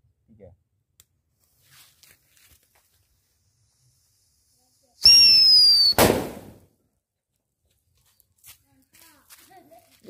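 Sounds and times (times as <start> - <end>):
firecracker shrill whistle: 5.0 - 6.4
firecracker loud bang: 5.1 - 6.6.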